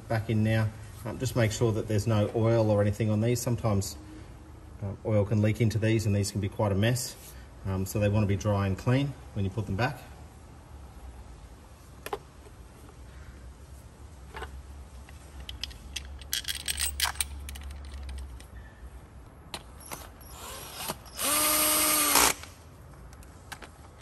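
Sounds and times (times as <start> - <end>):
cordless drill running: 20.3 - 22.5.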